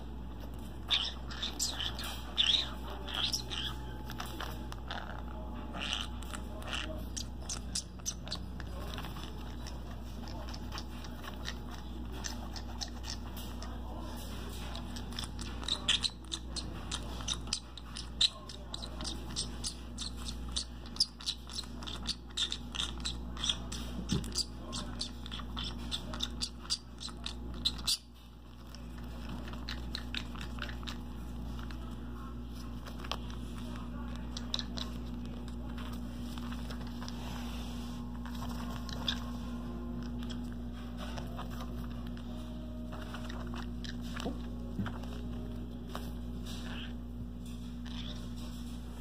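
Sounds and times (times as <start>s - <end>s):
low steady hum: 0.0s - 49.0s.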